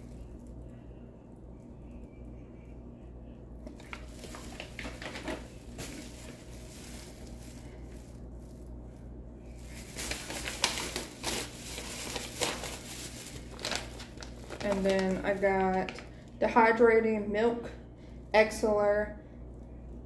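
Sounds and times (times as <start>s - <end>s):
plastic packaging crinkling: 3.6s - 8.9s, 9.5s - 16.4s.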